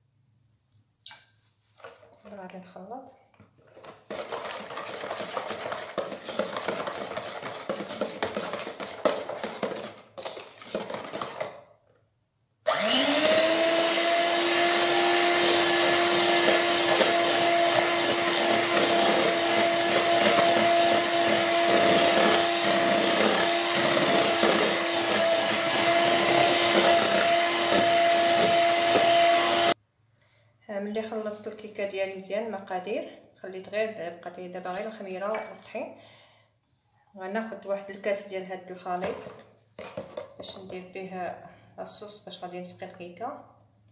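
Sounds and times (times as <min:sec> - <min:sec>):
electric hand mixer whining: 0:03.8 - 0:11.5, 0:12.7 - 0:29.8.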